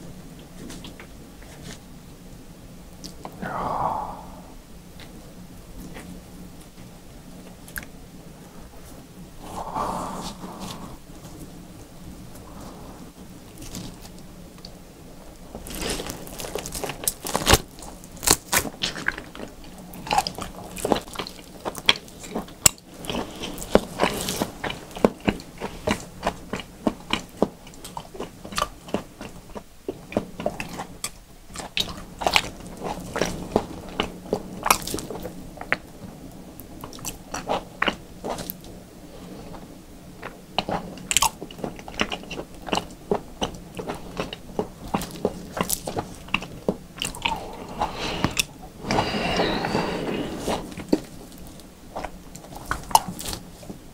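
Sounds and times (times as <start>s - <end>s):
faint steady hum: 0.0s - 53.9s
biting and chewing raw meat: 15.4s - 35.9s, 40.2s - 48.6s, 50.4s - 53.8s.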